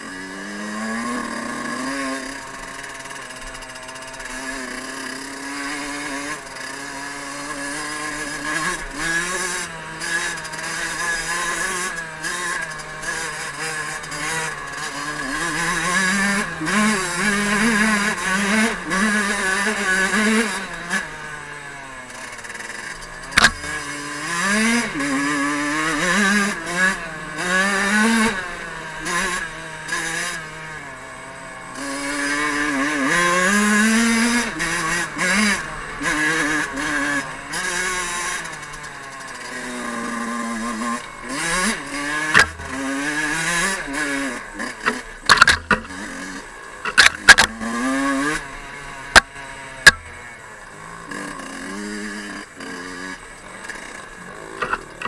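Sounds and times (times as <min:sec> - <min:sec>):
two-stroke motorbike engine revving: 0:00.0 - 0:55.0.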